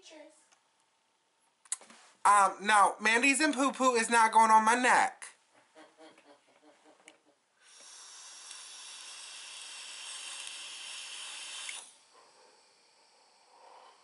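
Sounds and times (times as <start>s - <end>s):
vape draw hiss: 7.6s - 12.1s
faint exhale: 7.6s - 14.0s.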